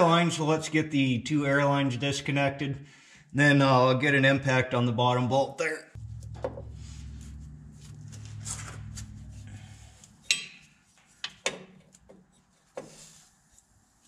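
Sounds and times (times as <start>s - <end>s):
low steady hum: 6.0s - 12.6s
wrench clinking and scraping: 10.2s - 12.7s.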